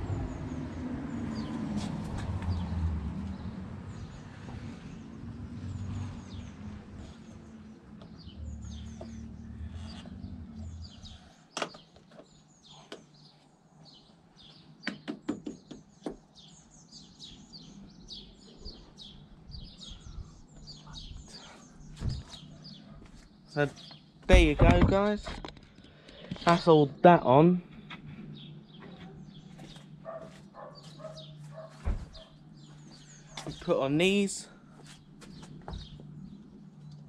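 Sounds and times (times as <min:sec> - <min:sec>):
small birds chirping: 0:00.1 - 0:37.0.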